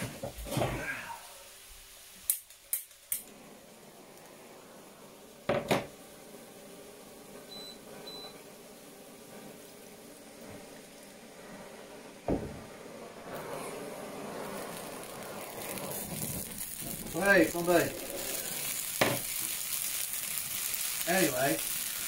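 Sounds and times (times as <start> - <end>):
blowtorch flame hissing: 0.0 - 22.0
liquid bubbling in a frying pan: 0.0 - 22.0
blowtorch igniter clicks: 2.3 - 3.3
thump: 5.5 - 5.9, 12.2 - 12.7.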